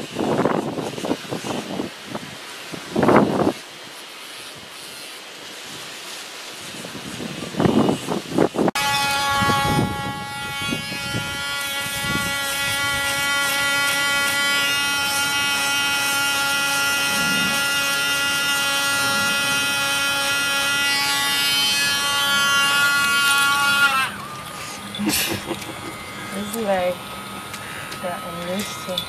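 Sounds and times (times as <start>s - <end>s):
electric nail grinder whining: 7.1s - 29.0s.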